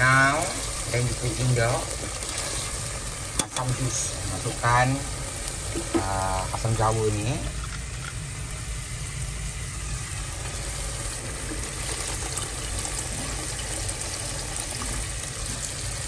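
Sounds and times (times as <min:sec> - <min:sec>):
liquid pouring: 0:00.0 - 0:16.0
paste sizzling in oil: 0:00.0 - 0:16.0.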